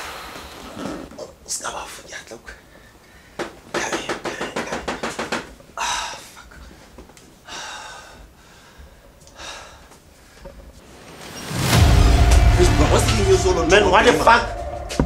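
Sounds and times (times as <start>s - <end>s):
man breathing hard and gasping: 5.8s - 10.6s.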